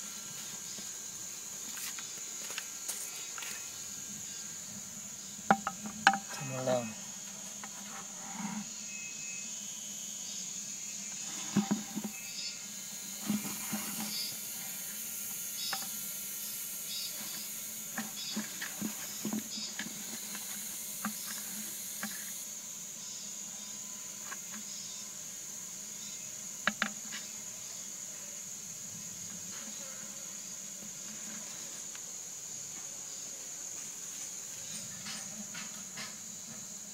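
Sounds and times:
steady high hiss: 0:00.0 - 0:36.9
chopsticks tapping plastic basin: 0:05.5 - 0:06.4.

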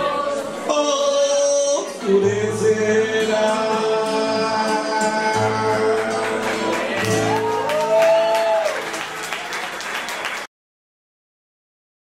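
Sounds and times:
audience applause: 0:05.8 - 0:10.5.

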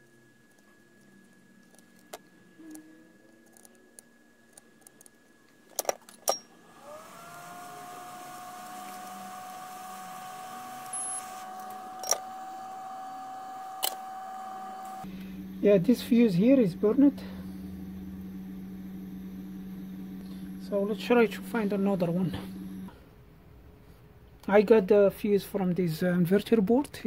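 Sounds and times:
electric fan motor humming: 0:06.4 - 0:23.0.

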